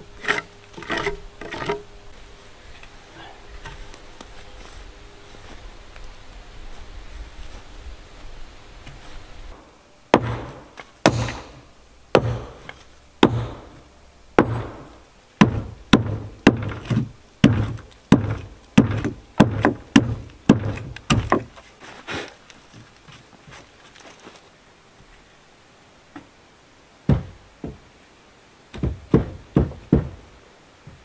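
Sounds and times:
heavy blows on wood: 10.1 - 13.8, 14.4 - 22.2, 27.1 - 27.8, 28.7 - 31.0.

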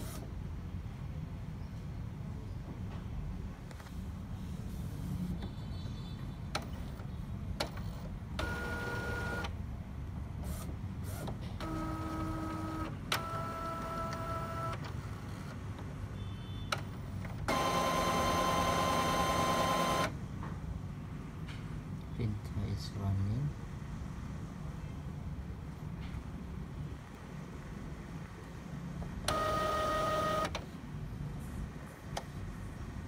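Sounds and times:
printer motors whining: 7.6 - 9.5, 10.5 - 15.6, 16.7 - 20.1, 29.2 - 30.6
printer clicks: 29.3 - 30.6.

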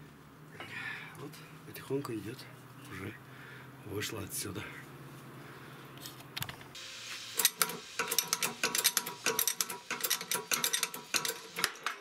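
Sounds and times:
metal parts clinking and clanking: 7.4 - 12.0.

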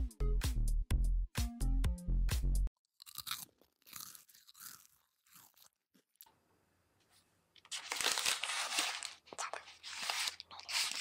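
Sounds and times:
plastic wrappers crinkling: 7.6 - 11.0.

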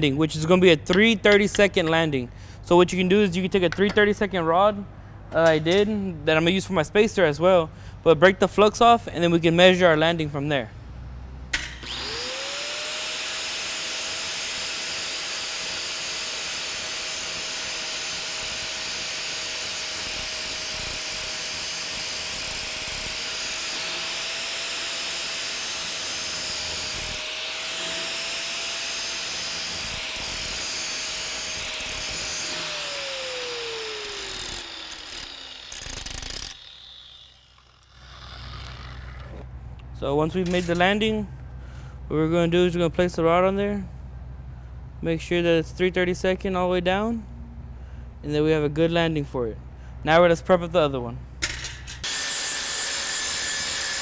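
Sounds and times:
angle grinder grinding steel: 11.7 - 39.5, 40.3 - 41.0, 51.8 - 54.0.

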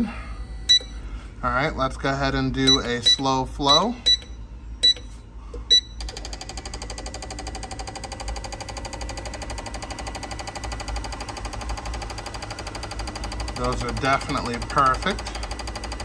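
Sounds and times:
short beeps: 0.7 - 1.0, 2.6 - 6.0
fuel injectors ticking buzz: 2.6 - 16.0.

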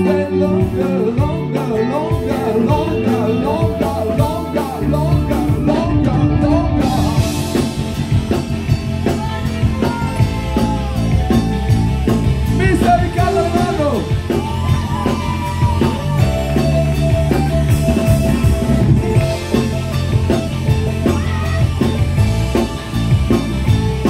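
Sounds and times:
person singing: 0.0 - 7.9, 9.0 - 16.6
drums and cymbals: 0.0 - 24.0
rock band playing: 0.0 - 24.0.

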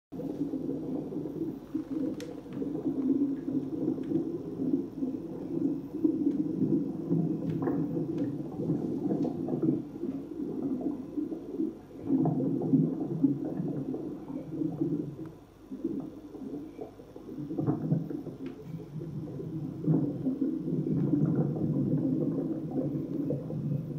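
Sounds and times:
aquarium water gurgling: 0.2 - 23.9
faint clicks: 1.7 - 3.2.

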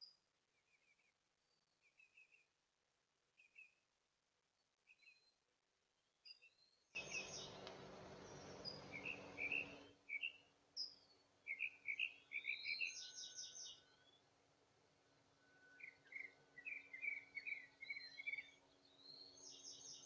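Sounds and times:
small birds chirping: 0.0 - 2.6, 3.3 - 3.9, 4.6 - 5.4, 6.0 - 14.3, 15.7 - 20.0
steady hiss: 7.0 - 9.8.

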